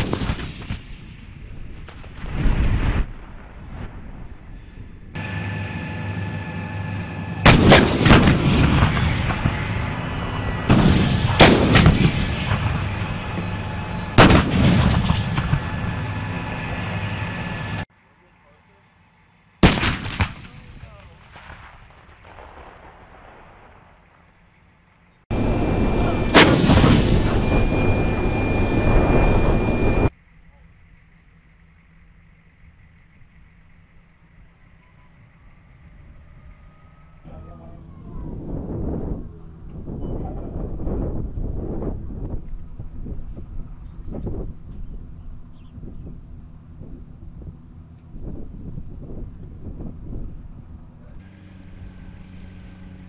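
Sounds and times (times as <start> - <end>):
howitzer blasts: 0.0 - 17.9, 19.6 - 30.1, 30.8 - 53.0
loud steady rumble: 0.0 - 53.0
steady mechanical hum: 3.4 - 21.6, 24.0 - 53.0
thin high tone: 25.3 - 30.8.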